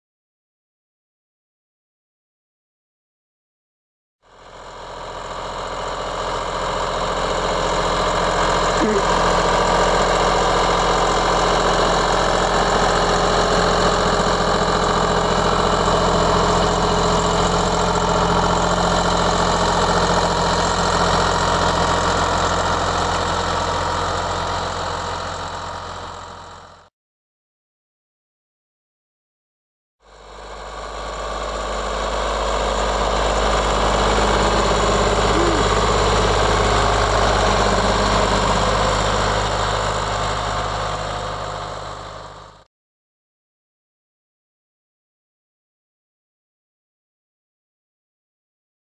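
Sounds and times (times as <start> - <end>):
tractor diesel engine running: 4.3 - 26.9, 30.1 - 42.7.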